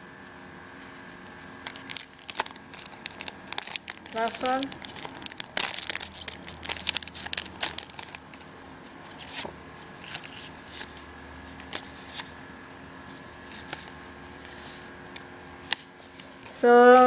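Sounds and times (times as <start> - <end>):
foil pack crinkling: 1.6 - 12.3.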